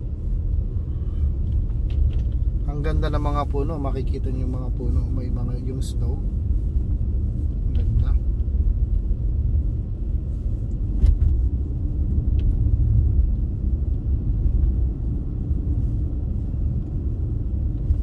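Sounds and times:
car driving on snow: 0.0s - 18.0s.

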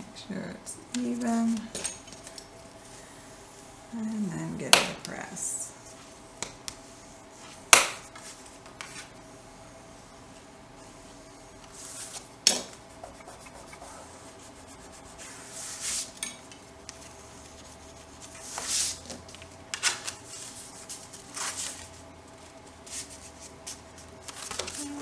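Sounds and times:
paper sliding and rubbing: 10.8s - 12.3s, 13.2s - 16.2s, 17.0s - 25.0s.

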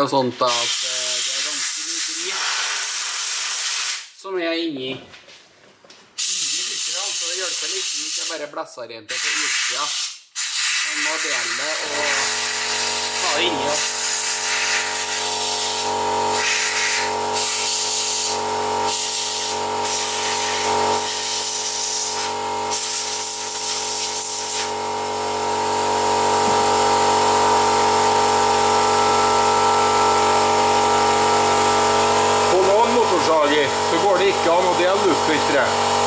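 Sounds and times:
compressed-air blow gun hissing: 9.2s - 24.8s.

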